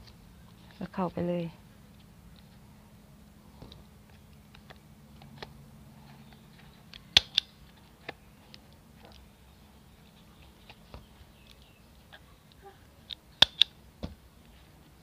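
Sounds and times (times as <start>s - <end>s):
hand stapler clicking: 7.1s - 7.5s, 13.1s - 13.8s.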